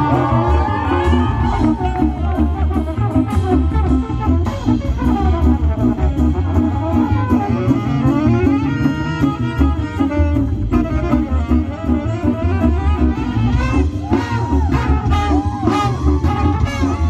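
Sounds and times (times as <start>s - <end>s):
swing band playing: 0.0s - 17.0s.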